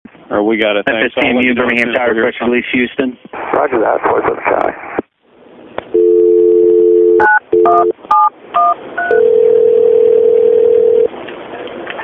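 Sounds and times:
two-tone dial tone: 0:05.9 - 0:11.1
telephone ringing tone: 0:06.0 - 0:11.1.

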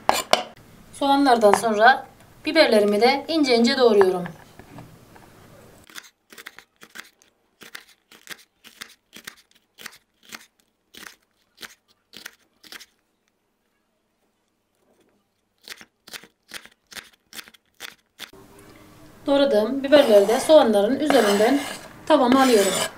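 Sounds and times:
knife chopping on wooden board: 0:21.0 - 0:22.9.

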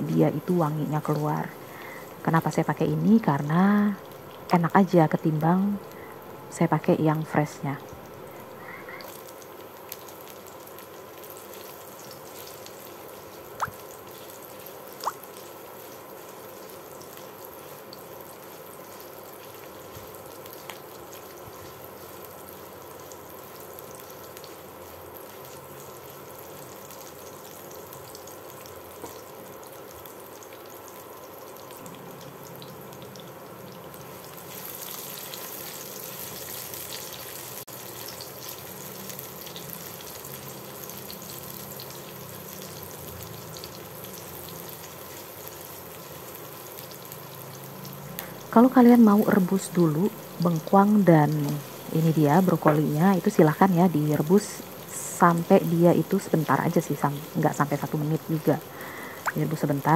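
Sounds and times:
aromatics sizzling in oil: 0:00.0 - 0:59.9.

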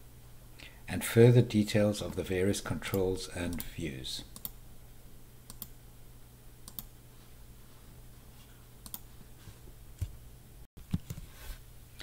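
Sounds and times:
computer mouse clicks: 0:04.4 - 0:04.6, 0:05.5 - 0:05.8, 0:06.6 - 0:06.9, 0:08.8 - 0:09.0.

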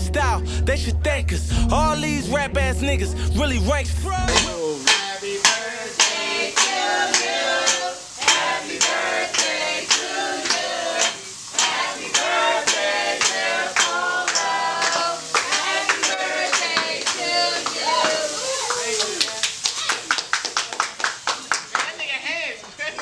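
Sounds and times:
group singing a celebration song: 0:03.5 - 0:18.6
people clapping in time: 0:04.3 - 0:23.0.

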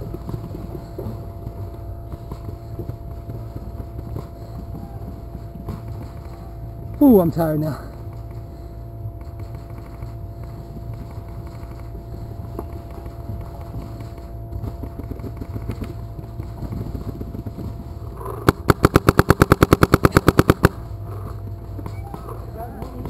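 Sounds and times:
paintball marker firing: 0:18.3 - 0:20.9.

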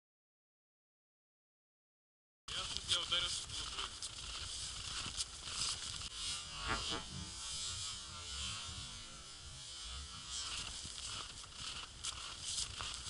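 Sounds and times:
footsteps crunching on snow: 0:02.5 - 0:07.6, 0:10.3 - 0:13.0
steady hiss: 0:02.5 - 0:07.9, 0:10.3 - 0:13.0.

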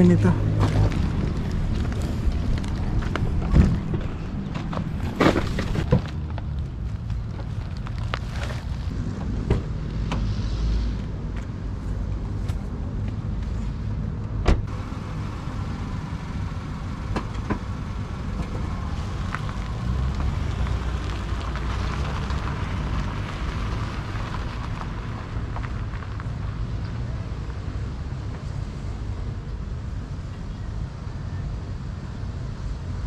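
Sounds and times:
car driving on gravel: 0:00.0 - 0:13.8, 0:14.6 - 0:29.2
car door shutting: 0:14.4 - 0:14.7.

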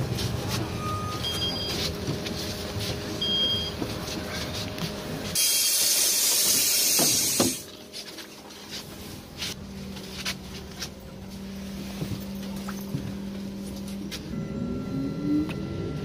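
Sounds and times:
pneumatic door air hiss: 0:05.4 - 0:07.6
steady low hum: 0:07.7 - 0:16.0.

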